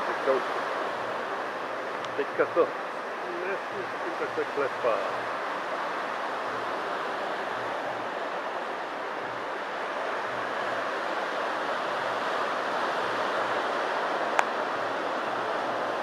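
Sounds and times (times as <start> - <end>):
surf breaking on beach: 0.0 - 16.0.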